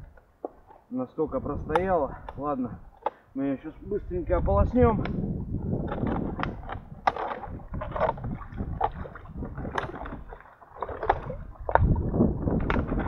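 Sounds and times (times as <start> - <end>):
water splashing and sloshing: 5.3 - 13.0.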